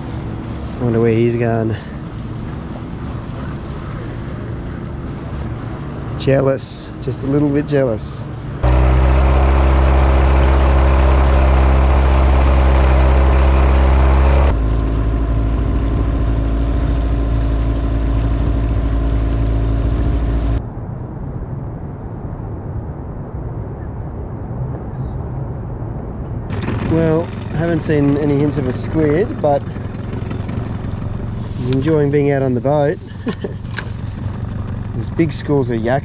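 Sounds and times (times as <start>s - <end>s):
outboard motor running: 0.0s - 6.2s, 8.5s - 20.6s, 26.5s - 36.0s.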